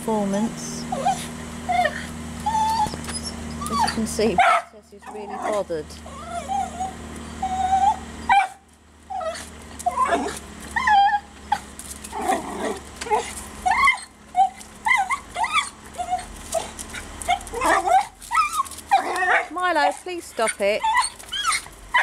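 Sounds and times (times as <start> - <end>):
small dog whining and yipping: 0.9 - 19.5, 20.4 - 22.0.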